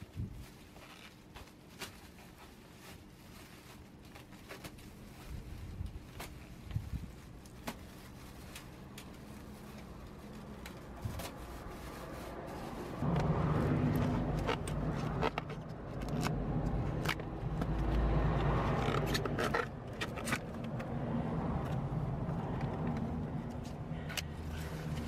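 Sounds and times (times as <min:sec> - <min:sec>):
scrapes and clicks on pipe fittings: 0:13.9 - 0:20.9.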